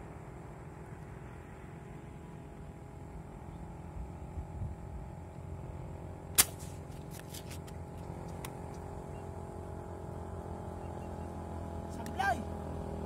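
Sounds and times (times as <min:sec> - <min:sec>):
air rifle shot: 0:06.4 - 0:06.9.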